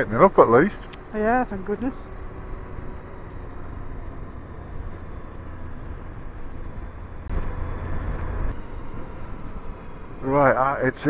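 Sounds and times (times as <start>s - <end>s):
motorcycle engine rumble: 0.0s - 11.0s.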